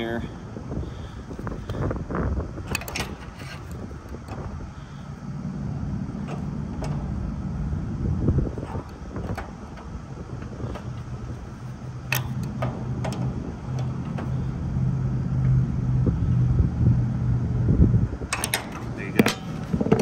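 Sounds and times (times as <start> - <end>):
steady low hum: 0.0 - 20.0
wrenches clicking on metal: 2.7 - 4.9, 8.6 - 14.6, 18.2 - 20.0.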